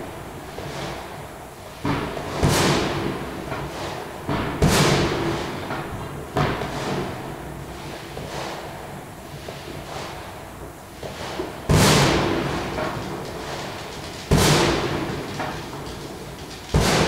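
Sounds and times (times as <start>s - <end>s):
fireworks bangs with echo: 1.8s - 3.5s, 4.2s - 5.7s, 11.0s - 17.0s.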